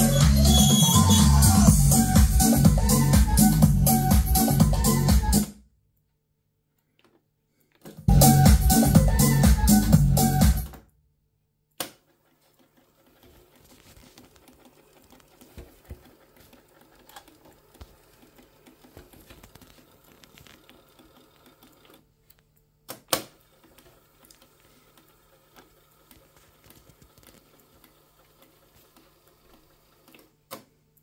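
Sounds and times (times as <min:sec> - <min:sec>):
tape fast-winding whir: 0:00.0 - 0:05.1
music from cassette deck: 0:00.0 - 0:05.5, 0:08.0 - 0:10.8.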